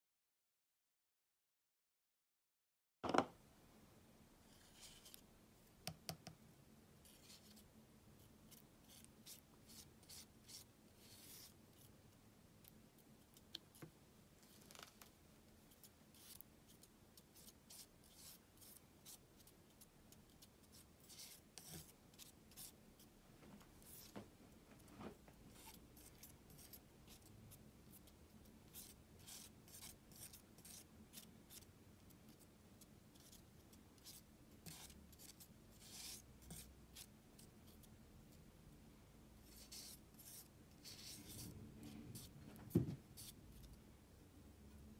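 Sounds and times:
palette knife scraping paint: 4.5s - 5.3s, 7.0s - 7.7s, 8.5s - 12.0s, 15.7s - 23.2s, 25.5s - 37.9s, 39.4s - 43.8s.

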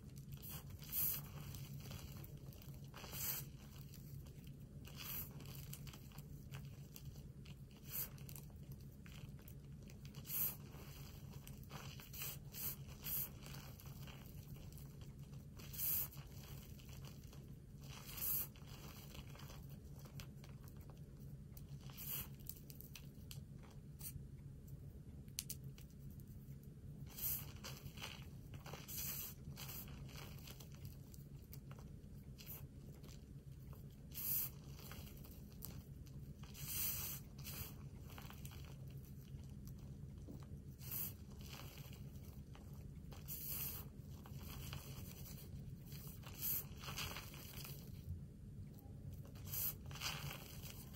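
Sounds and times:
steady low hum: 0.0s - 50.9s.

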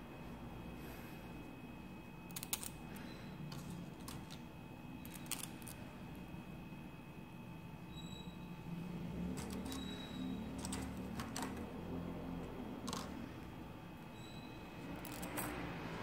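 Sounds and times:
faint steady hum: 0.0s - 16.0s
small metal parts clicking: 2.3s - 2.8s, 3.5s - 4.4s, 5.0s - 5.8s, 9.4s - 9.9s, 10.5s - 11.7s, 12.8s - 13.2s, 15.0s - 15.6s.

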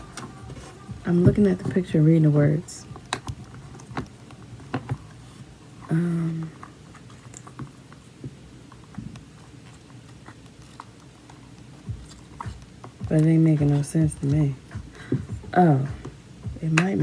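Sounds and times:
person humming: 5.9s - 6.6s.

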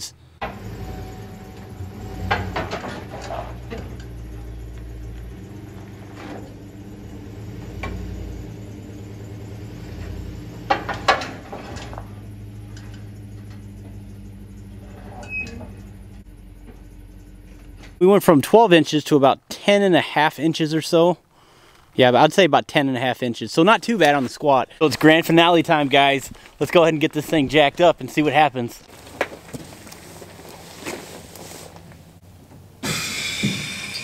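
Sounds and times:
vehicle engine running slowly: 0.3s - 18.0s, 28.8s - 33.8s
clunks on metal ramps: 0.4s - 14.0s.

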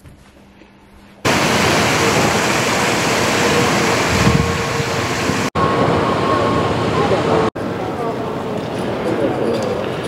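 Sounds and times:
fountain water splashing: 1.3s - 5.5s.

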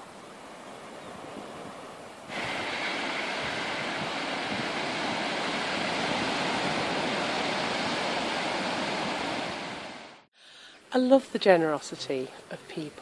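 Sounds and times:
sea surf breaking on rocky shore: 0.8s - 10.3s.

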